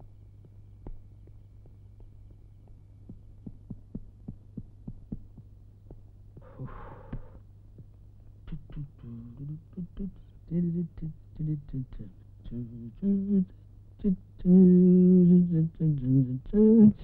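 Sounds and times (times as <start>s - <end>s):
soft regular thumps: 0.0s - 9.0s
steady low hum: 0.0s - 17.0s.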